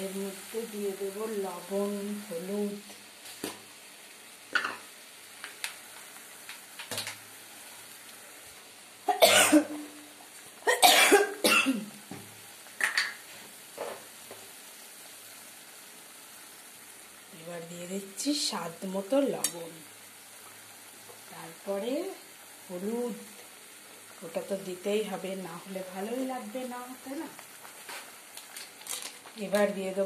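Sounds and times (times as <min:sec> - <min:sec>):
faint sizzling in oil: 0:00.0 - 0:30.0
woman coughing: 0:09.1 - 0:09.8, 0:10.7 - 0:11.9.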